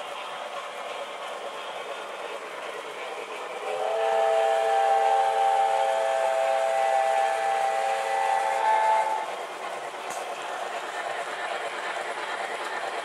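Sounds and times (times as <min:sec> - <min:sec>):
model train rolling: 0:00.0 - 0:13.0
model train chime whistle: 0:03.7 - 0:09.3.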